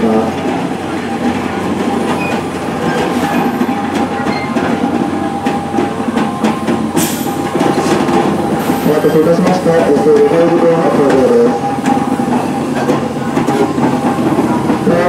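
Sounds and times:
steam locomotive rolling over rails: 0.0s - 15.0s
train clanks: 0.0s - 15.0s
steam hiss: 6.9s - 7.5s.

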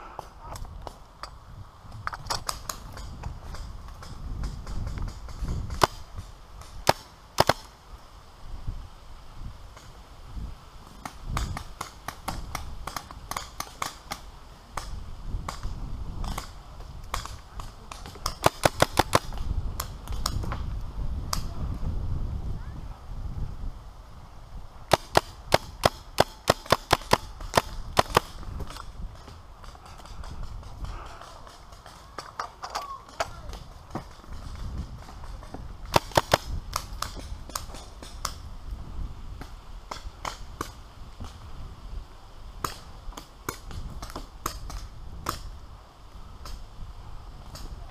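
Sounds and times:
paintball markers firing: 11.0s - 20.5s, 24.9s - 38.4s.

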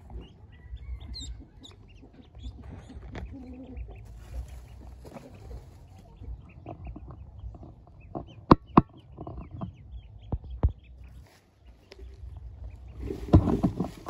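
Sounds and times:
ducklings peeping: 0.0s - 14.0s
clattering and scrabbling on basket: 4.0s - 8.3s, 12.9s - 14.0s.

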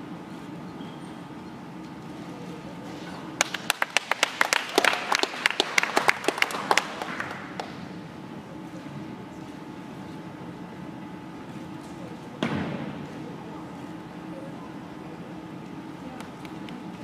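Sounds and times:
scattered clapping: 3.4s - 7.9s.

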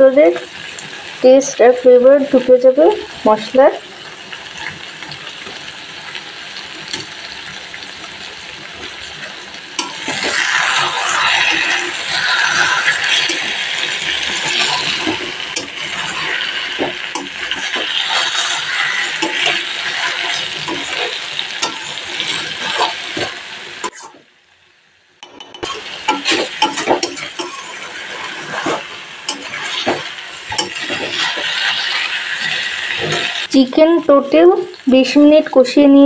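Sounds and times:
food sizzling in oil: 0.0s - 36.0s
spatula scraping pan: 8.8s - 24.2s, 25.3s - 33.5s.

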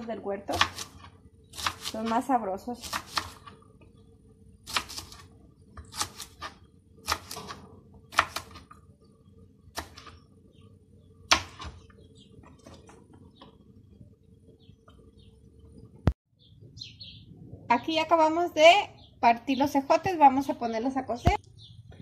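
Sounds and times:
knife chopping on cutting board: 0.5s - 1.9s, 2.8s - 3.5s, 5.8s - 8.7s, 9.8s - 10.1s, 11.3s - 11.8s.

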